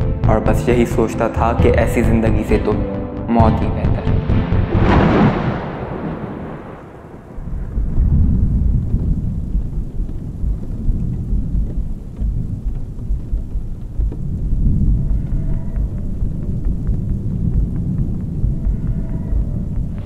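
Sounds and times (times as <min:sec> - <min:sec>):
thunder rumbling: 0:04.2 - 0:20.0.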